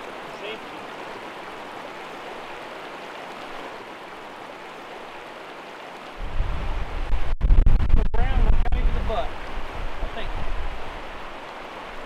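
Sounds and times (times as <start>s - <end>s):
stream rushing over rocks: 0.0s - 7.3s, 8.2s - 12.0s
wind rumble on microphone: 6.2s - 11.4s.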